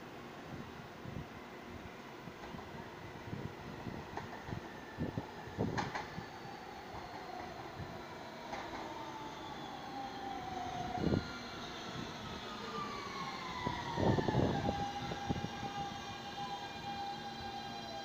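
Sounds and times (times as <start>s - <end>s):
subway train motor whine: 0.0s - 18.0s
train wheels clunking over track: 5.6s - 6.2s, 8.5s - 9.0s.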